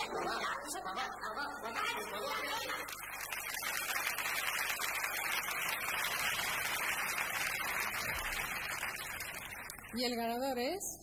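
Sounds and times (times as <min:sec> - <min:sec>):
audience applauding: 0:02.2 - 0:10.1.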